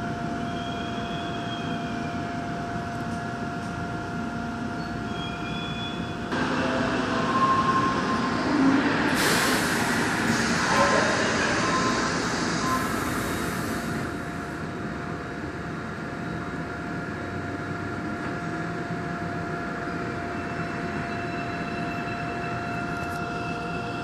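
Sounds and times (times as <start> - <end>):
train traction motor whine: 0.0 - 24.0
air hiss: 8.9 - 14.5.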